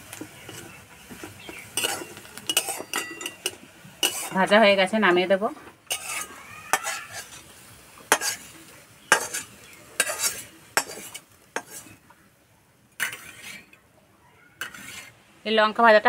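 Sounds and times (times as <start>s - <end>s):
metal spatula scraping and clinking: 0.4s - 4.6s, 5.9s - 7.5s, 8.1s - 12.0s, 13.0s - 13.8s, 14.6s - 15.2s.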